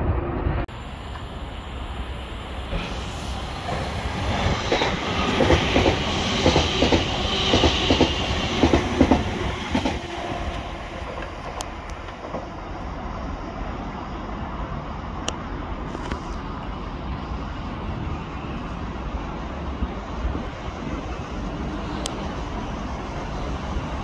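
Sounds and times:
train rushing hiss: 0:00.7 - 0:24.0
train wheels clacking over rail joints: 0:03.6 - 0:12.6.

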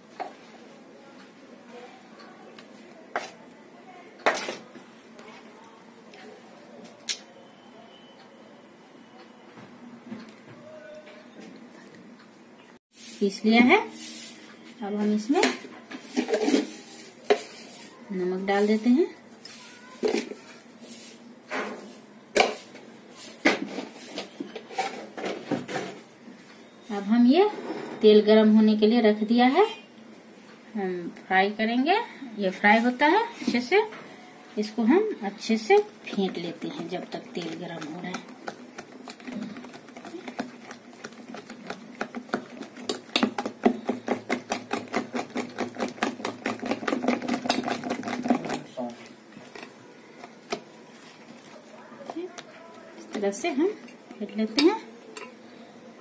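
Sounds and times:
batter beaten in a bowl: 0:35.3 - 0:55.4.

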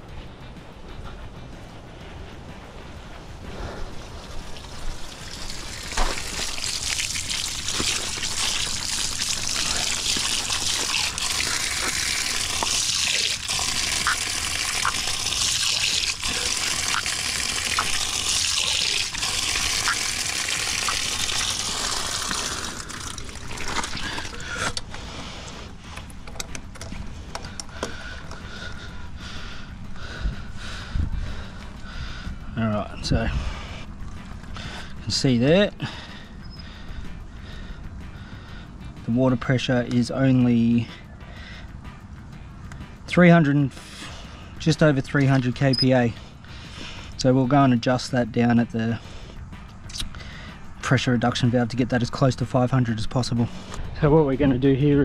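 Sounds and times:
water rushing from tap: 0:04.4 - 0:24.8.

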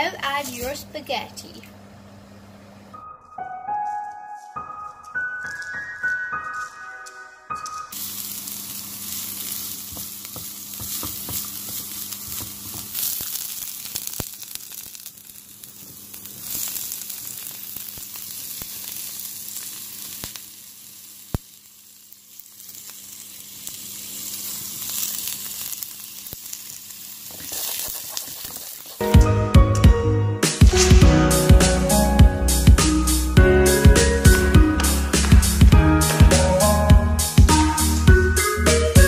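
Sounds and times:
vegetables sizzling in oil: 0:07.9 - 0:29.2.

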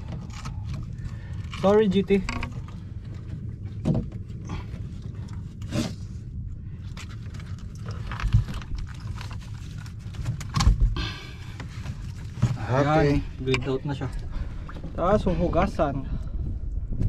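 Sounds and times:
knocks and scrapes on boat deck: 0:00.0 - 0:06.3, 0:07.4 - 0:12.9
steady low rumble: 0:00.0 - 0:17.0.

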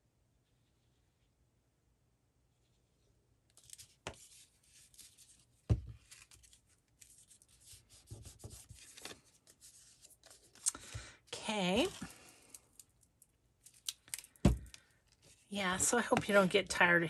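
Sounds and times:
paper rustling and scraping: 0:03.6 - 0:10.6
thump: 0:14.4 - 0:14.7.

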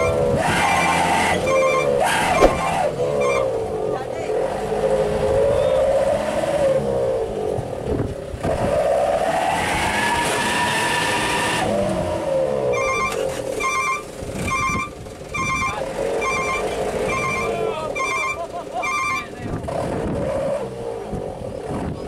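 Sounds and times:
truck engine revving: 0:00.0 - 0:22.0
high electronic beep: 0:12.8 - 0:19.3.

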